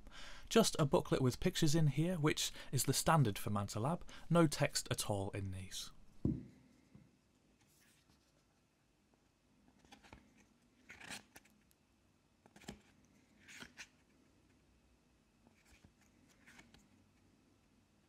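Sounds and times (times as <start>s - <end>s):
paper pages turning: 9.8s - 11.6s, 12.4s - 14.0s, 15.5s - 17.0s.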